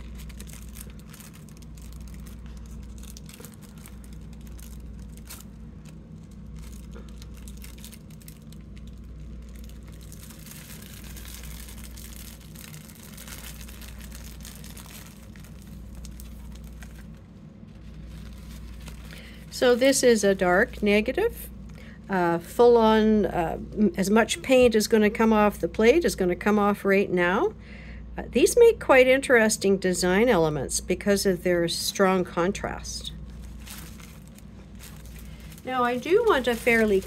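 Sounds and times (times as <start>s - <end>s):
tissue paper rustling: 0.0s - 21.1s, 33.2s - 37.0s
steady low hum: 0.0s - 37.0s.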